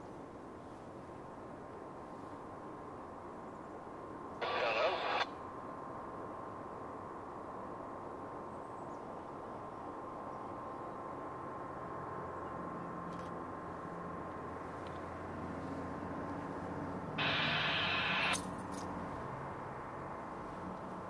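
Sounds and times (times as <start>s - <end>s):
distant diesel locomotive drone: 0.0s - 21.0s
steady hiss: 4.4s - 5.2s, 17.2s - 18.6s
thin high tone: 17.2s - 18.4s.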